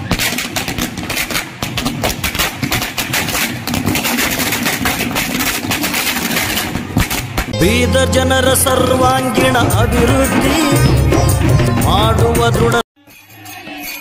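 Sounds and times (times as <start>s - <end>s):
firecrackers going off: 0.0s - 7.6s.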